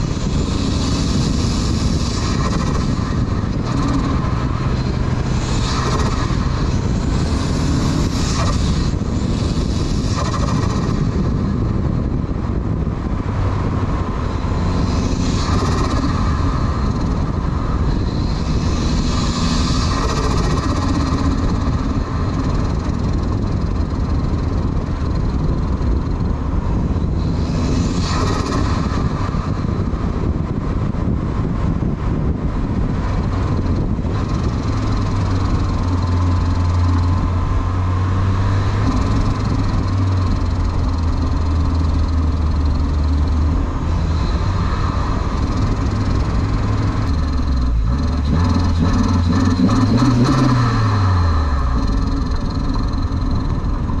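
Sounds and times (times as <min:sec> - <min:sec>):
car engine and exhaust: 0:00.0 - 0:54.0
road and wind noise: 0:00.0 - 0:54.0.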